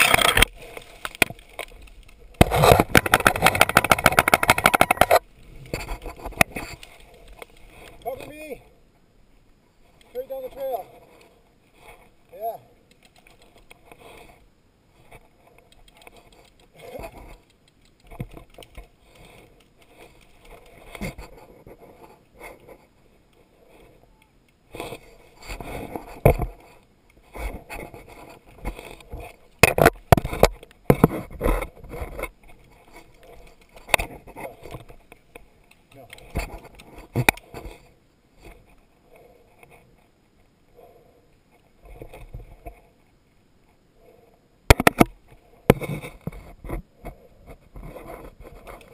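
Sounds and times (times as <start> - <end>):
sharp snaps and knocks: 0.0 - 8.2, 12.8 - 13.9, 15.6 - 21.3, 28.6 - 37.7, 44.7 - 46.8.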